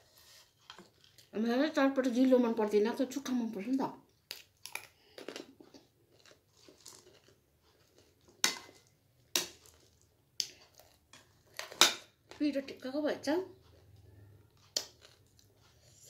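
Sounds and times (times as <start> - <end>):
person chewing crunchy snack: 4.3 - 8.4, 9.6 - 11.6, 14.6 - 16.0.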